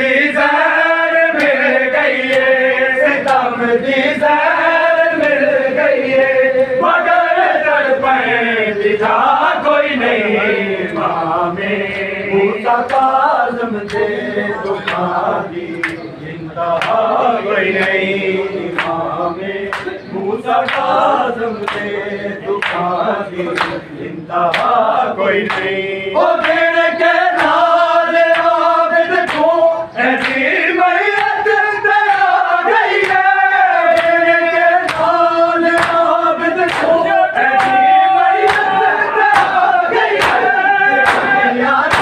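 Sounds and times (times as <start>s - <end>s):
men chanting together: 0.0s - 42.0s
chest-beating slaps: 38.5s - 42.0s.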